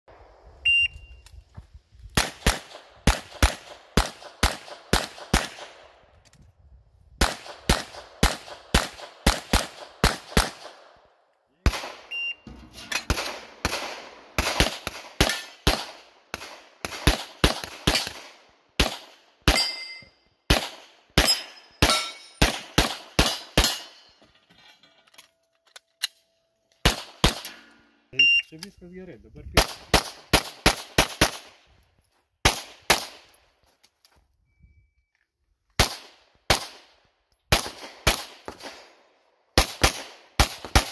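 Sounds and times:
shot timer beep: 0.6 - 1.2, 12.1 - 12.6, 28.2 - 28.5
rapid handgun shots: 2.2 - 6.0, 7.2 - 11.0, 11.6 - 12.2, 13.1 - 19.7, 20.5 - 24.0, 26.8 - 27.5, 29.6 - 31.6, 32.4 - 33.3, 35.8 - 36.9, 37.5 - 40.9.

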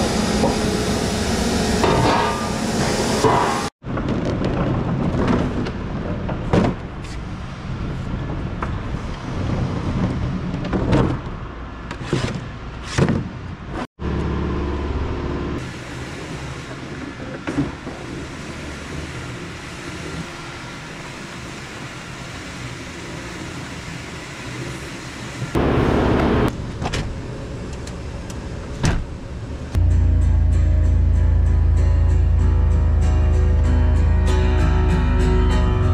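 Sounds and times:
loud burst of noise: 18.2 - 26.5.

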